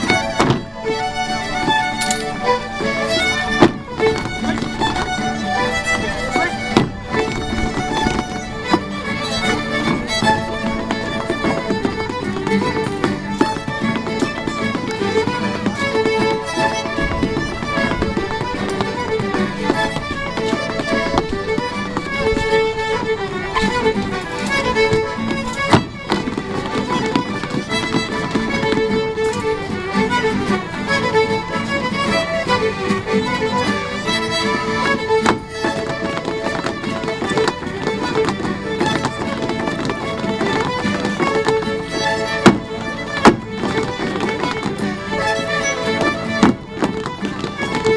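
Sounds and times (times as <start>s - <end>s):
fiddle dance tune: 0.0s - 47.9s
sharp clack: 1.9s - 2.4s.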